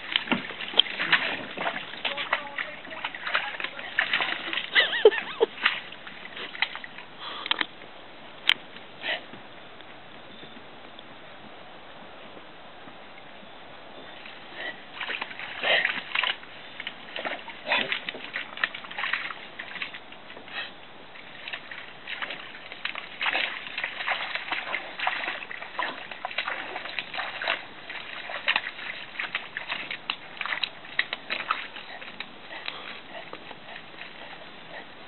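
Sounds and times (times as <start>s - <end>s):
dog splashing in water: 0.0s - 7.0s, 14.2s - 35.0s.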